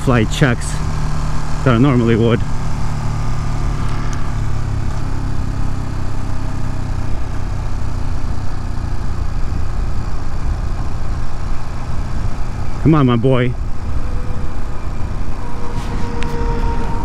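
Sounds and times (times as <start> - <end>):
motorcycle engine running: 0.0 - 17.0
rushing air: 13.5 - 17.0.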